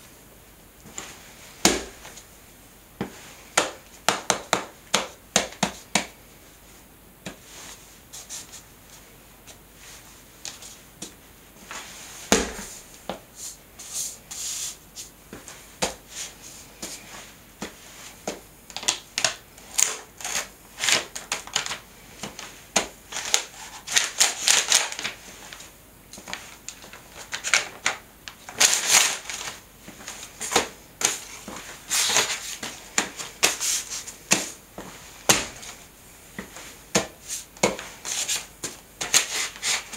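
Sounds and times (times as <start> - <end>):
sneakers stomping: 1.6 - 2.2, 12.3 - 13.2
paper crinkling under shoes: 22.4 - 35.8.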